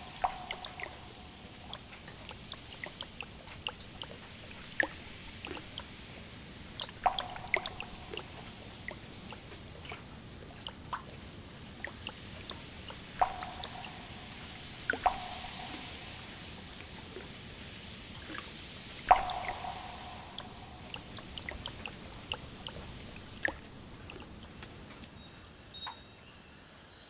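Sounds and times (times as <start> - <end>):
water drops dripping off leaves: 0.0 - 24.4
faint steady hiss: 0.0 - 27.0.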